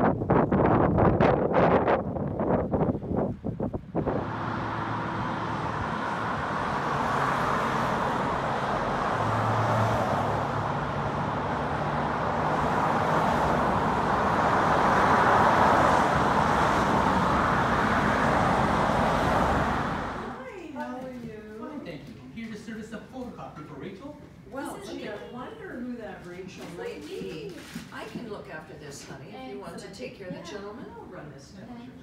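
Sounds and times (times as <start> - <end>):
cars passing on road: 3.6 - 20.4.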